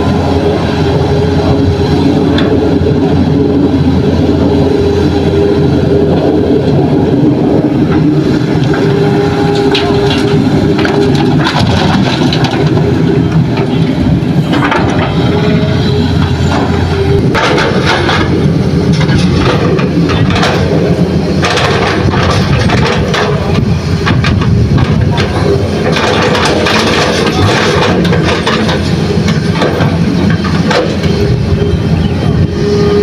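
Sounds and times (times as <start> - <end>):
excavator diesel engine under load: 0.0 - 33.0
soil and stones clattering: 9.7 - 12.9.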